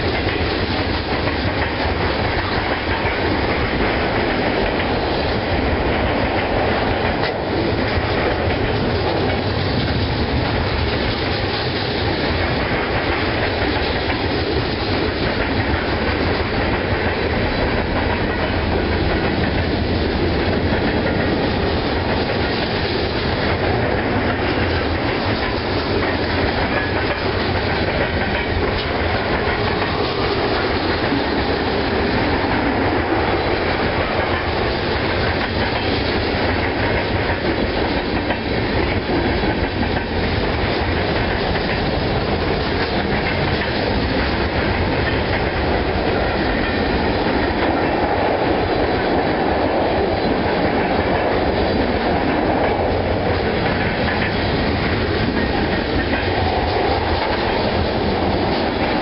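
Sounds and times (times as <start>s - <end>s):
train cars rolling on rails: 0.0s - 59.0s.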